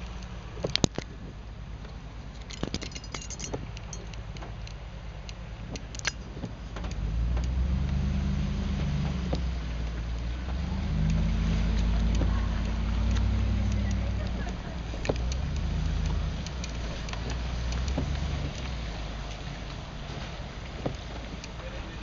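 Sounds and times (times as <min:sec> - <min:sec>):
car engine and road rumble: 0:00.0 - 0:22.0
sharp clicks and ticks: 0:02.4 - 0:08.0, 0:09.0 - 0:19.9.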